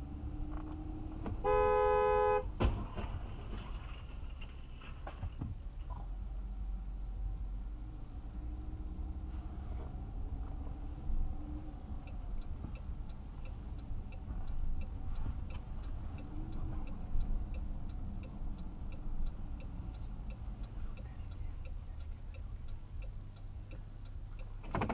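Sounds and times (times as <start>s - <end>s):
car rolling rumble: 0.0s - 24.9s
car indicator relay clicking: 11.7s - 24.9s.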